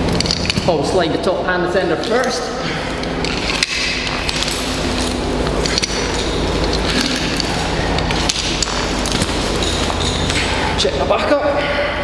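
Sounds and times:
metal hardware clinking: 2.0 - 10.6
steady rustling: 2.0 - 11.1.

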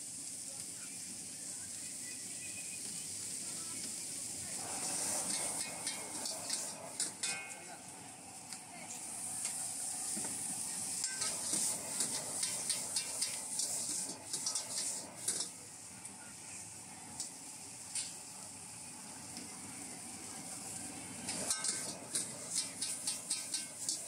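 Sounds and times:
food sizzling in a wok: 0.0 - 24.0
metal spatula scraping a wok: 4.7 - 7.6, 10.9 - 15.5, 21.3 - 24.0.

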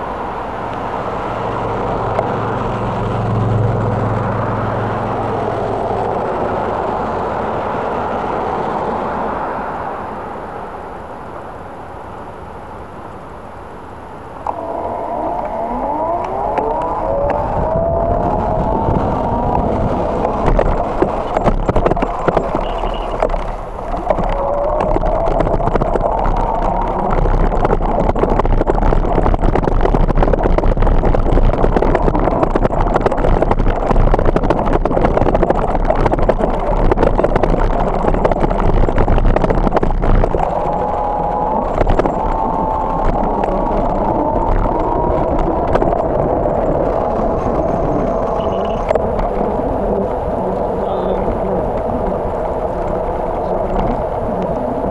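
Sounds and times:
faint wavering whine: 9.8 - 28.6
bicycle rushing and rattling: 14.6 - 54.9.

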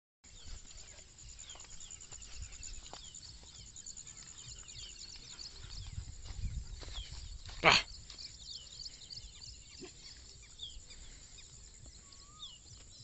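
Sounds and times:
birds chirping: 0.3 - 13.0.

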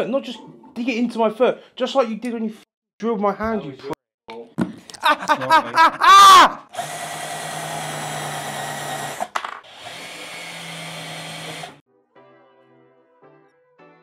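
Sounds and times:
cordless drill driving screws: 6.7 - 11.8.

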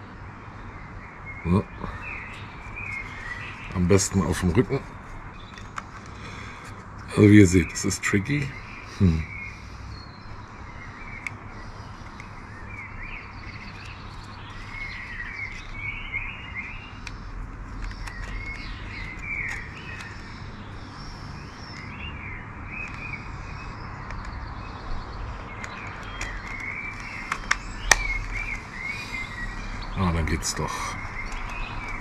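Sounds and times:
birds chirping and singing: 0.0 - 32.0
sharp plastic clicks: 11.0 - 15.9, 16.6 - 20.5, 22.8 - 24.5, 25.4 - 28.6, 31.0 - 32.0.

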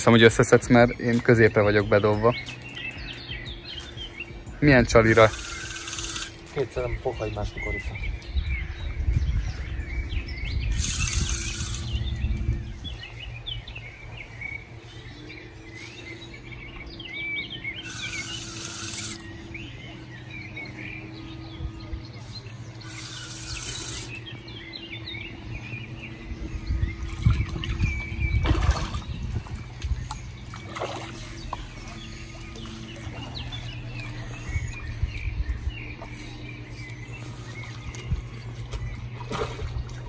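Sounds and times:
songbirds chirping: 0.0 - 40.0.

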